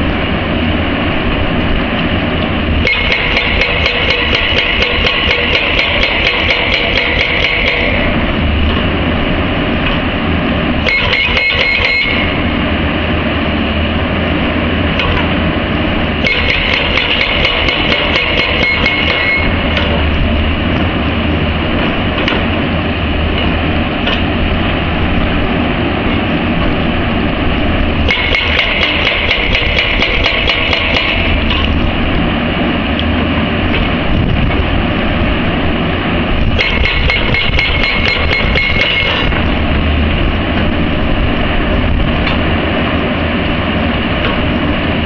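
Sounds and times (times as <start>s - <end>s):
low engine note: 0.0s - 29.8s, 31.1s - 45.0s
hydraulic breaker hammering rock: 2.8s - 8.9s, 10.8s - 12.5s, 16.2s - 20.9s, 28.0s - 31.9s, 36.4s - 39.7s.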